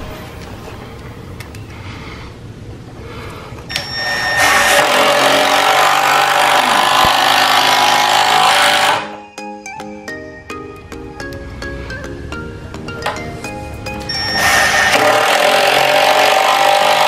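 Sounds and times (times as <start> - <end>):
impact driver hammering: 4.4 - 9.1, 14.8 - 17.0.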